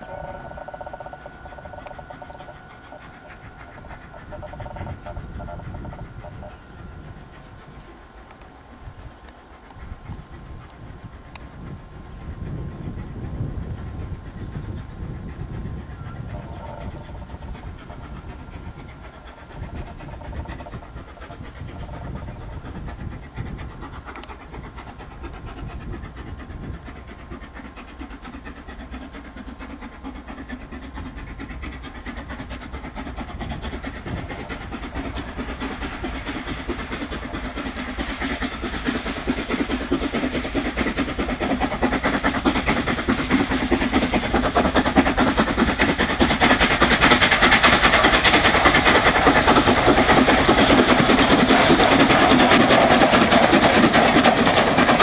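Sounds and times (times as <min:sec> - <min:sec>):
steam locomotive exhaust: 0:00.0 - 0:55.0
train wheels on rails: 0:00.0 - 0:55.0.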